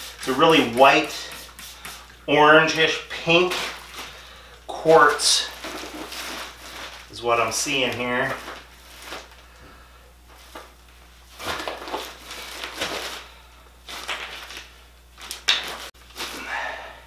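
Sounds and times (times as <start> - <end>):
plastic tarp rustling: 5.0 - 9.5, 11.3 - 16.6.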